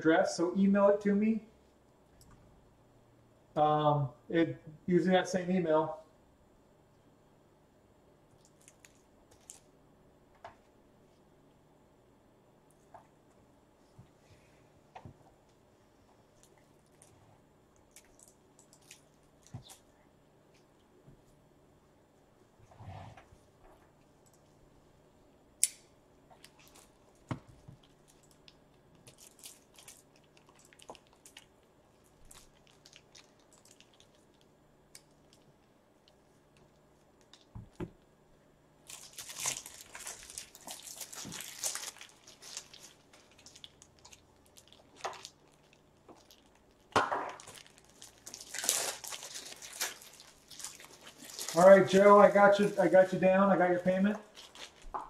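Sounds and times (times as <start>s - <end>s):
plastic crinkling rustle: 8.4s - 9.7s, 26.3s - 37.6s, 38.8s - 55.0s.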